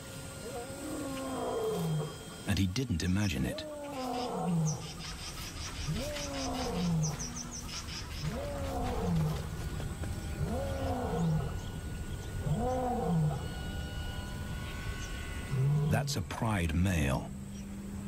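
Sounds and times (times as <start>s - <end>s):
lion roaring: 0.4s - 2.4s, 3.5s - 5.0s, 5.8s - 7.5s, 8.2s - 13.6s, 15.5s - 16.0s.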